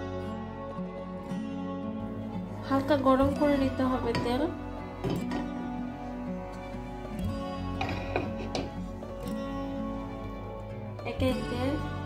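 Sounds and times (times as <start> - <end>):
instrumental music with plucked notes: 0.6 - 12.0.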